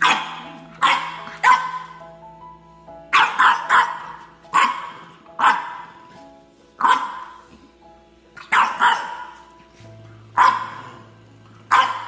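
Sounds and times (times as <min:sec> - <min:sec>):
dog barking: 0:00.0 - 0:02.0, 0:03.1 - 0:06.0, 0:06.8 - 0:07.4, 0:08.4 - 0:09.4, 0:10.4 - 0:11.0, 0:11.7 - 0:12.0
background music with held notes: 0:00.0 - 0:12.0.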